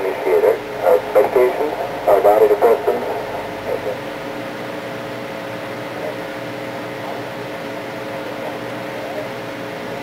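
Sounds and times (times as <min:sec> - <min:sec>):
radio static hiss: 0:00.0 - 0:04.8
faint wavering radio tones: 0:00.0 - 0:06.2
low hum: 0:00.0 - 0:06.3.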